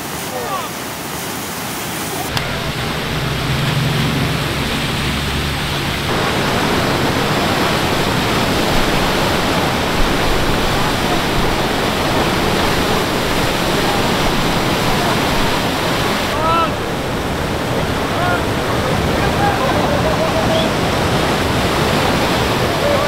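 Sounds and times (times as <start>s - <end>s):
fast-flowing water rushing: 0.0s - 23.0s.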